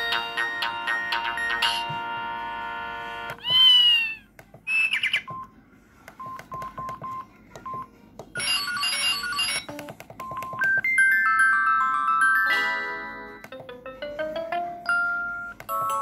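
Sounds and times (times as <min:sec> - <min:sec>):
stepping ringtone notes: 0:06.2 - 0:16.0.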